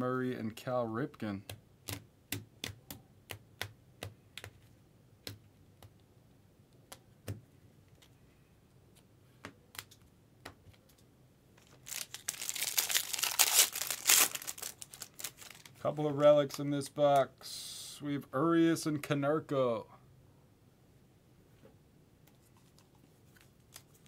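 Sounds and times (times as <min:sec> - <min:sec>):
trading cards clicking and tapping: 0:01.4 - 0:06.0
plastic wrap crinkling and tearing: 0:11.6 - 0:15.8.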